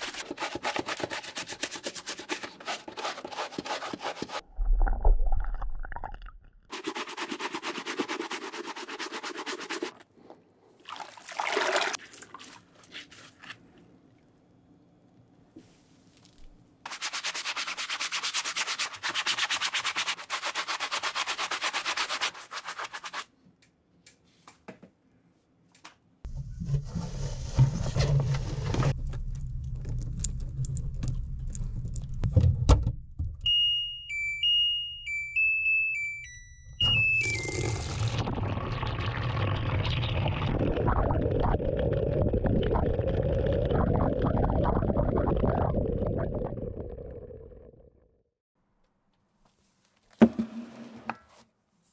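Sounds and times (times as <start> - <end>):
washing machine beeps melody: 33.4 - 38.2.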